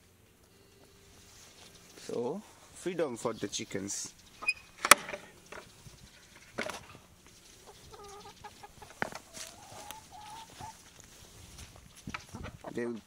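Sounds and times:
hens clucking: 0:05.3 - 0:13.0.

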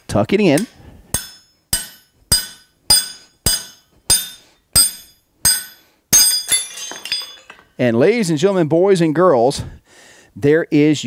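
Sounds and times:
hammer blows ringing on steel: 0:00.6 - 0:06.6.

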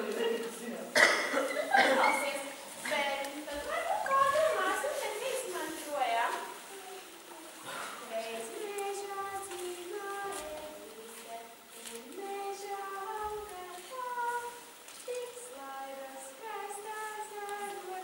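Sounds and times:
girl singing slow melody: 0:06.6 - 0:18.0.

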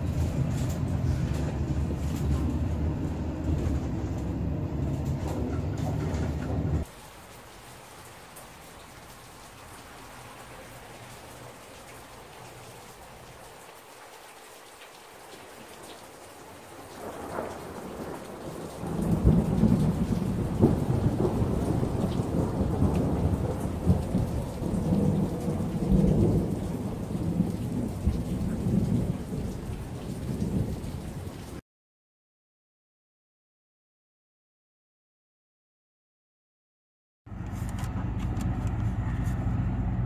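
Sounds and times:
road and wind rumble inside car: 0:00.0 - 0:07.0, 0:37.3 - 0:40.0.

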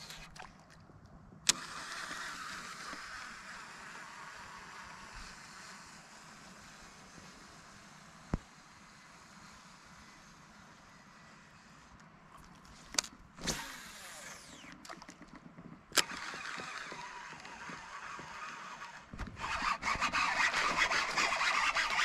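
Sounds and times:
fishing line whirring off reel: 0:00.0 - 0:00.5, 0:01.4 - 0:22.0
fishing reel click: 0:01.5 - 0:04.4
reel being wound in: 0:01.5 - 0:11.9, 0:12.9 - 0:15.3, 0:16.0 - 0:22.0
harsh rasping with rapid clicks: 0:13.0 - 0:22.0.

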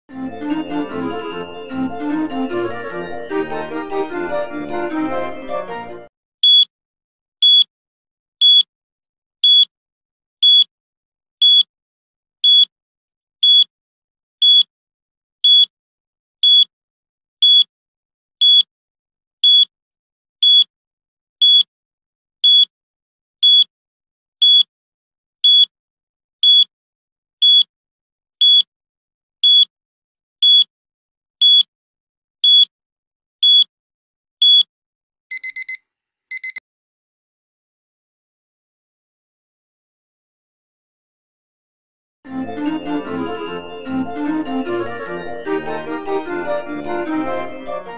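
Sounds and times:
countdown timer beeping: 0:35.3 - 0:36.6, 0:42.3 - 0:47.9.

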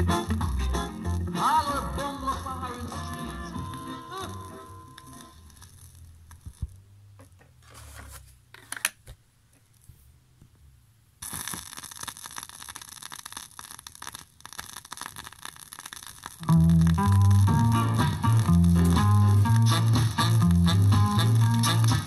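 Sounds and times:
ska music record: 0:00.0 - 0:05.5, 0:14.8 - 0:22.0
vinyl surface crackle and hiss: 0:00.0 - 0:06.9, 0:11.2 - 0:22.0
record being swapped on turntable: 0:06.4 - 0:09.2.

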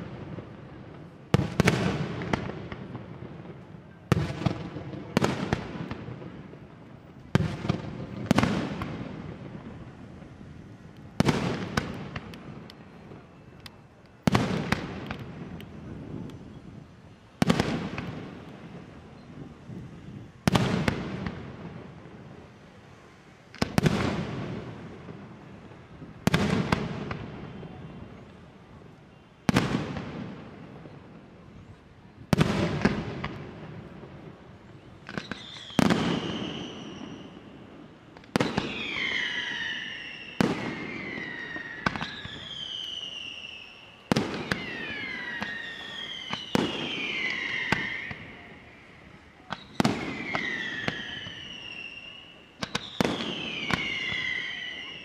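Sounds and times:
firework bangs with echoing rumble: 0:00.0 - 0:06.7, 0:07.3 - 0:09.8, 0:11.2 - 0:13.2, 0:14.2 - 0:16.4, 0:17.4 - 0:18.9, 0:20.4 - 0:22.2, 0:23.6 - 0:25.3, 0:26.0 - 0:27.7, 0:32.3 - 0:34.1, 0:35.0 - 0:37.5, 0:38.2 - 0:42.8, 0:44.1 - 0:48.4, 0:49.5 - 0:51.7, 0:52.6 - 0:54.9
falling firework whistles: 0:34.8 - 0:55.0.

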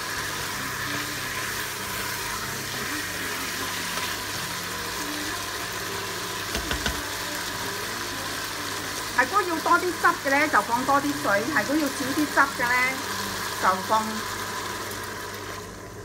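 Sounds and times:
food sizzling in a hot pot: 0:00.0 - 0:16.0.

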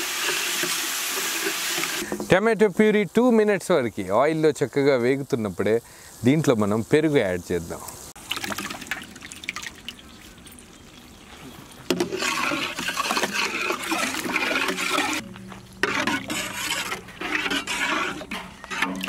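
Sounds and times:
wet liquid stirring: 0:08.2 - 0:19.0.

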